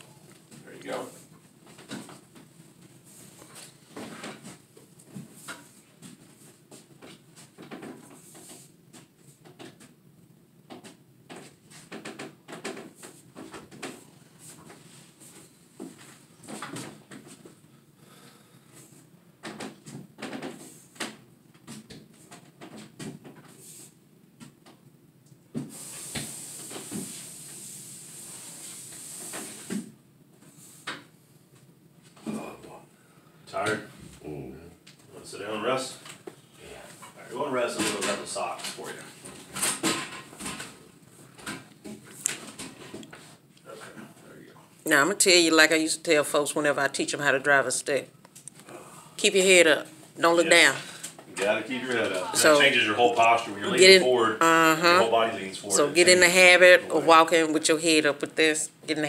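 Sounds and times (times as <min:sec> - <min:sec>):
steady high hiss: 0:25.5 - 0:31.0, 0:48.2 - 0:57.9.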